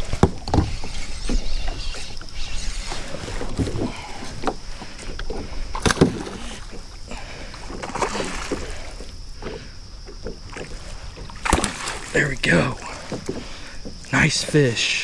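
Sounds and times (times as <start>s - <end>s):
water sloshing against kayak: 0.0s - 15.0s.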